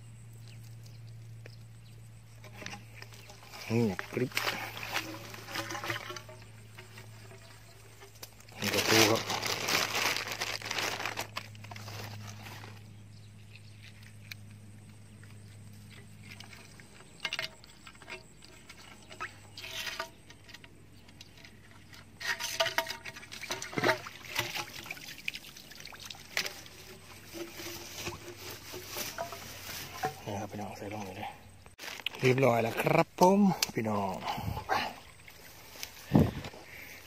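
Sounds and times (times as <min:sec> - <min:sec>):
low steady hum: 0:00.0 - 0:37.0
water trickling and splashing: 0:00.4 - 0:12.8, 0:15.7 - 0:31.2, 0:32.8 - 0:36.3
rustles and clicks: 0:00.4 - 0:25.0, 0:26.2 - 0:31.0.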